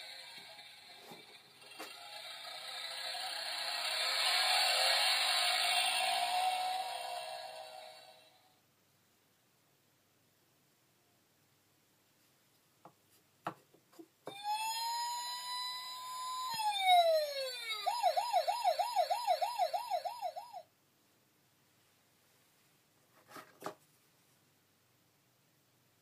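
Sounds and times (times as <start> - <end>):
toy siren through small speaker: 1.9 - 8.3, 14.3 - 20.7.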